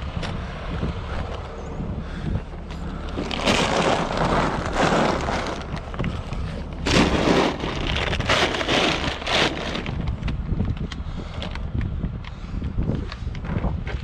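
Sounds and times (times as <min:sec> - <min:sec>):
plastic bags crinkling: 0:03.0 - 0:10.3.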